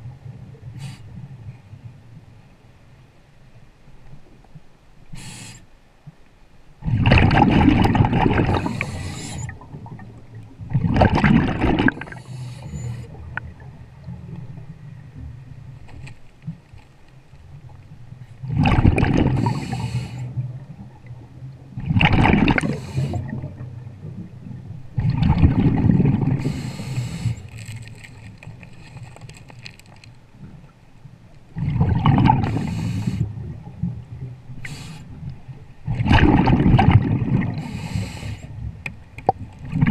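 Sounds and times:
low steady hum: 0.0 - 39.9
underwater exhaled bubble bursts: 6.8 - 12.3, 18.4 - 27.2, 31.5 - 37.8, 39.3 - 39.9.

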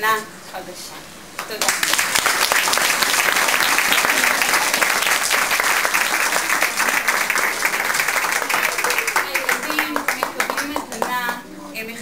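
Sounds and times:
audience applause: 1.6 - 11.4.

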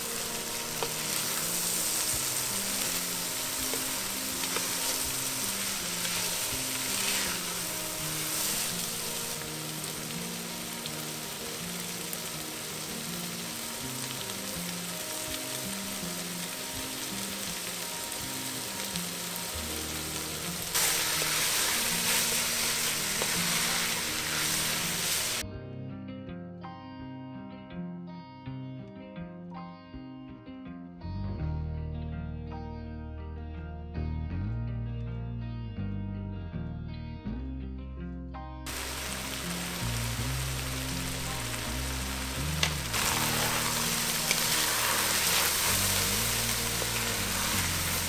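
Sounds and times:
vegetables sizzling in fat: 0.0 - 25.4, 38.7 - 48.0.

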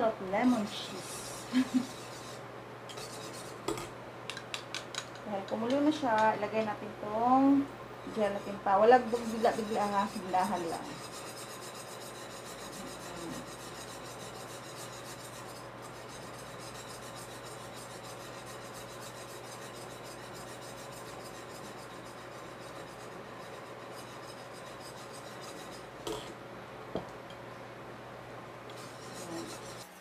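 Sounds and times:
low steady hum: 0.0 - 30.0
metal spoon scraping glass bowl: 0.5 - 3.9, 8.1 - 26.3, 28.7 - 30.0.

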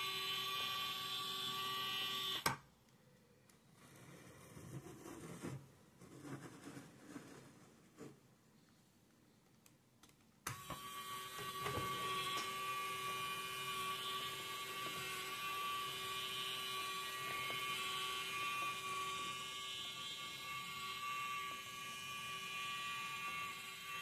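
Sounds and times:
small electric motor whirring: 0.0 - 2.5, 10.5 - 24.0.

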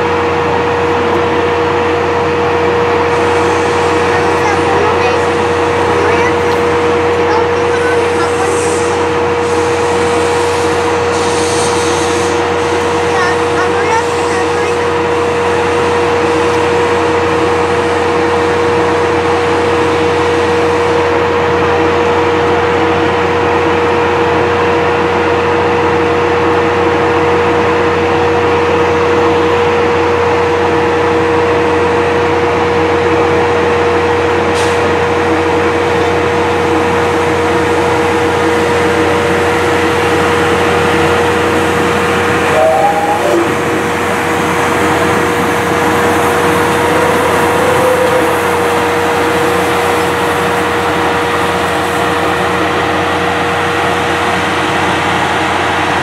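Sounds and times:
steam locomotive hissing steam: 1.9 - 28.1, 30.8 - 56.0
constant whine: 40.0 - 51.5.

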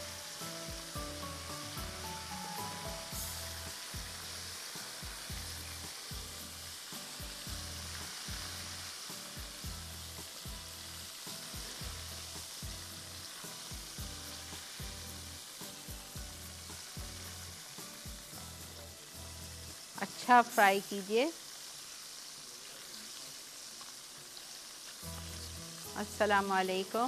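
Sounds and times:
chicken wings sizzling in hot oil: 0.0 - 27.0.

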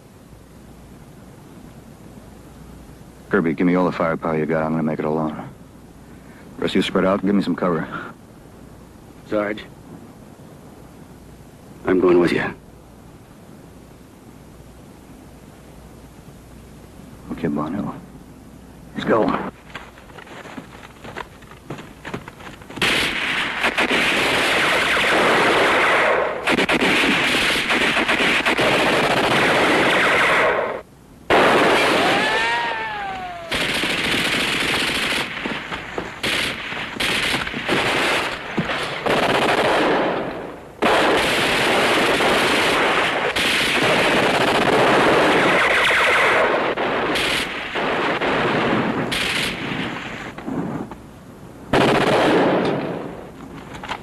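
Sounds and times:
automatic weapons fire: 22.8 - 32.6, 33.5 - 50.0, 51.7 - 53.1
whine falling in pitch: 32.0 - 33.8.

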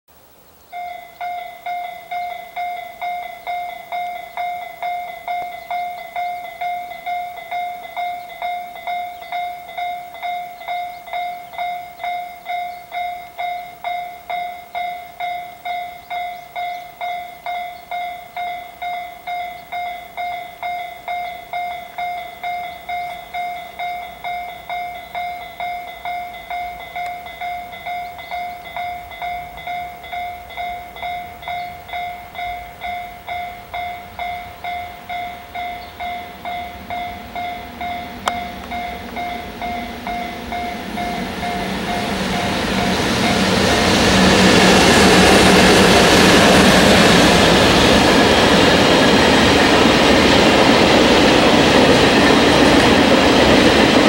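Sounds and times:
low rumble of freight train: 0.1 - 54.0
level crossing bell ringing: 0.8 - 43.8.

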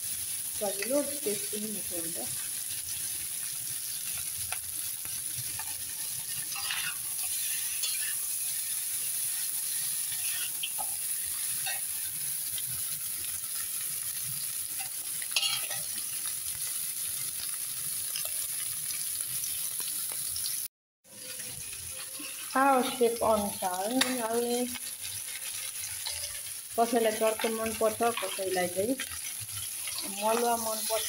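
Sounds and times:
meat sizzling in a wok: 0.0 - 31.0
spatula scraping and stirring: 5.1 - 12.8, 14.8 - 16.0, 21.1 - 31.0.

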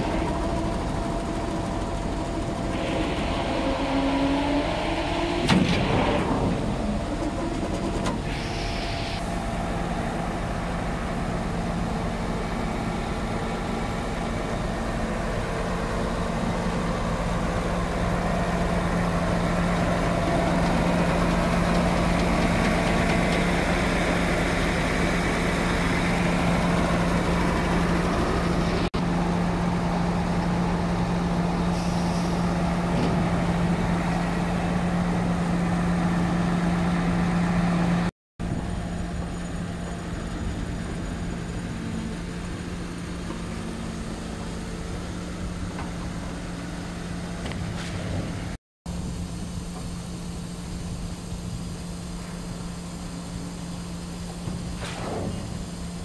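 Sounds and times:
concrete pump engine humming: 0.0 - 56.0.

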